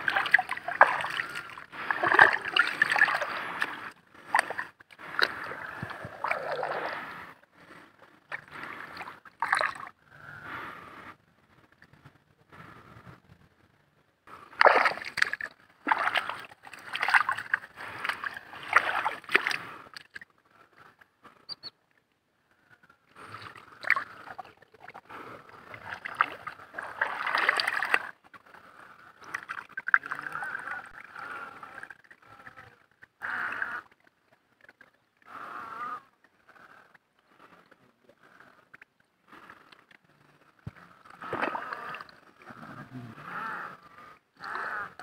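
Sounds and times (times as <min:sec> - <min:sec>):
hands splashing in muddy water: 0:00.0 - 0:07.1, 0:14.6 - 0:20.2, 0:25.8 - 0:28.1, 0:41.2 - 0:42.1.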